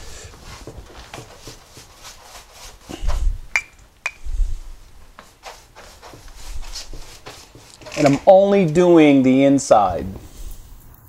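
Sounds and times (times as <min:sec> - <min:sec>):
paintbrush rubbing on sheet metal: 0:00.0 - 0:03.5, 0:04.1 - 0:09.0.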